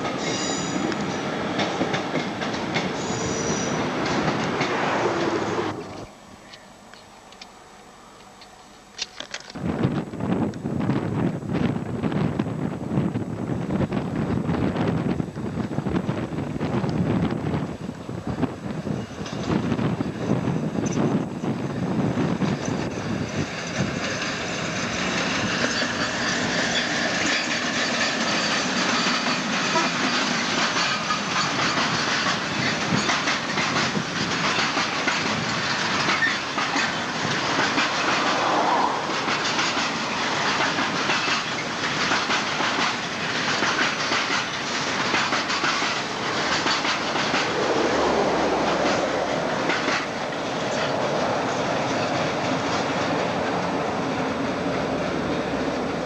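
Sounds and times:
train wheels clacking over rail joints: 0.0s - 6.0s, 18.7s - 56.0s
diesel locomotive engine rumble: 0.0s - 56.0s.

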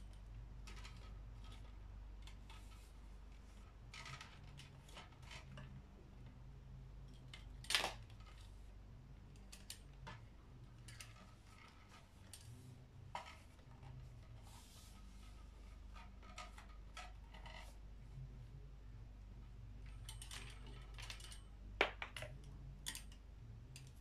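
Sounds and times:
faint steady hum: 0.0s - 24.0s
plastic clicks and rattles: 0.1s - 2.8s, 19.8s - 24.0s.

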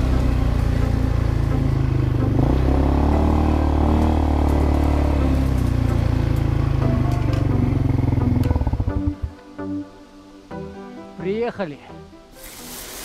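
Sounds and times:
atv engine revving: 0.0s - 9.3s.

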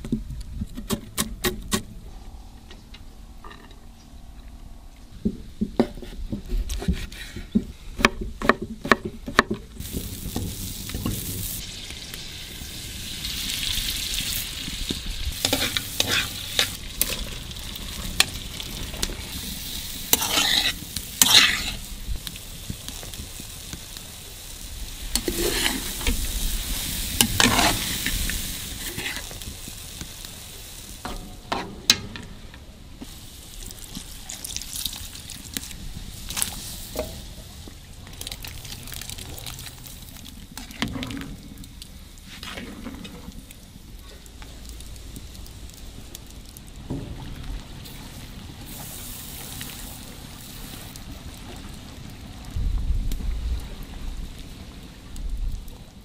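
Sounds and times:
vegetables sizzling in a pan: 9.8s - 31.6s, 47.8s - 52.0s
stirring scrapes: 15.4s - 16.8s, 20.1s - 21.9s, 25.2s - 26.2s, 27.2s - 28.2s, 28.8s - 29.4s.

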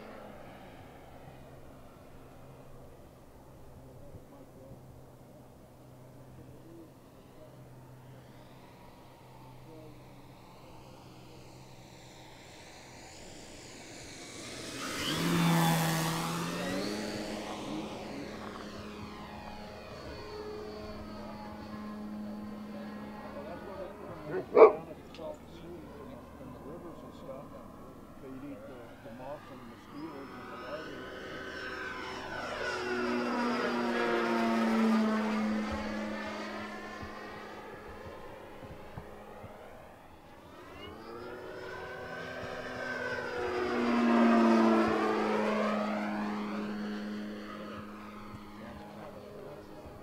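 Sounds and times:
model plane propeller whoosh: 6.2s - 50.0s
electric motor hum: 12.2s - 24.9s.

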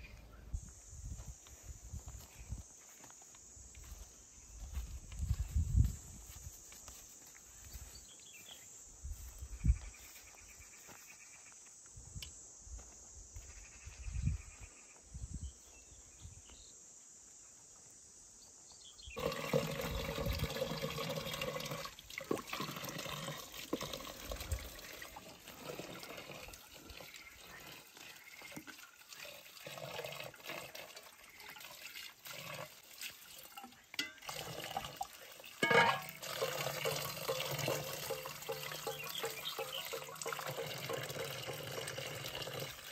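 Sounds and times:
tap water splashing into bucket: 19.2s - 42.9s.

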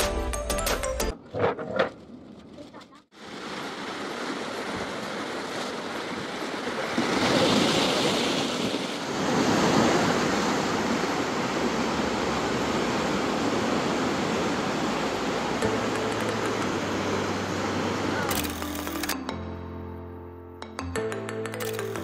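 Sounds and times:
sea waves breaking: 3.1s - 19.0s.

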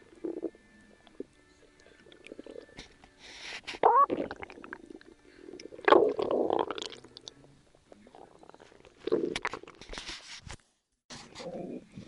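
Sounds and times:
stomach gurgling and rumbling: 0.0s - 1.3s, 1.9s - 2.8s, 3.8s - 9.9s, 11.4s - 12.0s
squeaky stomach squeal: 3.8s - 4.4s.

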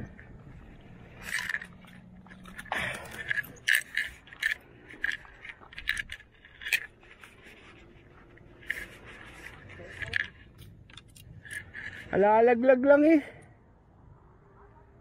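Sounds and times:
small hard objects clinking: 1.1s - 7.6s.

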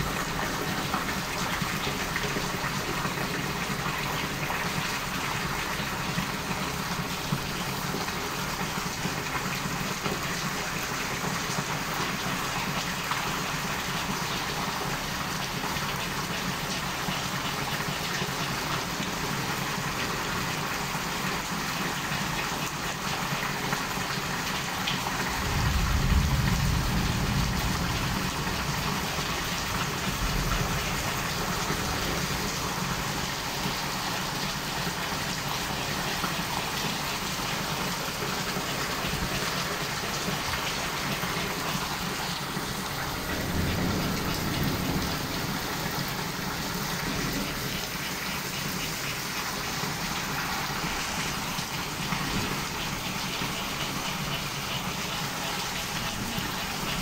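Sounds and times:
heavy rain pouring: 0.0s - 57.0s
thunder rumble: 25.2s - 33.9s, 38.6s - 48.3s, 50.8s - 53.3s.

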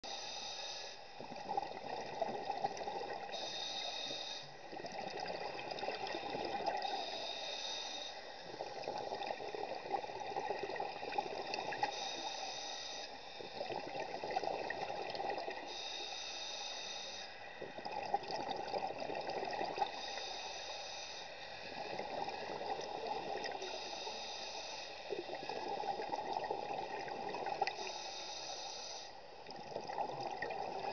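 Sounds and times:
regulator inhale hiss: 0.1s - 1.1s, 3.3s - 4.7s, 6.8s - 8.5s, 11.7s - 13.6s, 15.6s - 17.6s, 19.9s - 21.8s, 23.0s - 25.3s, 27.6s - 29.3s
exhaled bubbles rushing: 29.5s - 30.9s.

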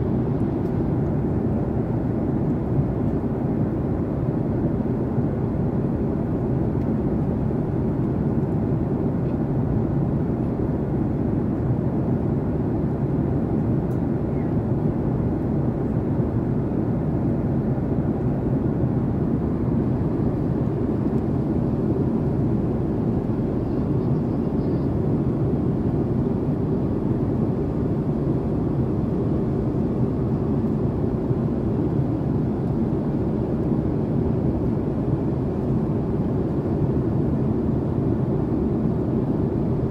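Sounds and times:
airplane cabin noise: 0.0s - 39.9s.

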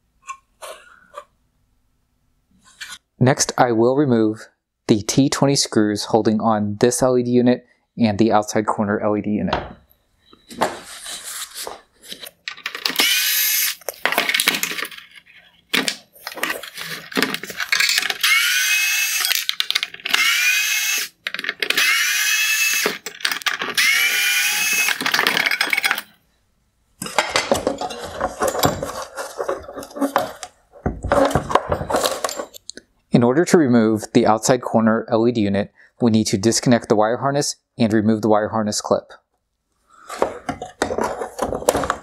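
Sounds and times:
electric screwdriver whirring: 12.8s - 13.8s, 17.8s - 25.2s
plastic clattering and rubbing: 13.8s - 18.3s, 19.4s - 20.2s, 21.2s - 21.8s, 22.8s - 23.8s, 24.8s - 26.1s, 27.0s - 32.6s, 40.0s - 42.0s.

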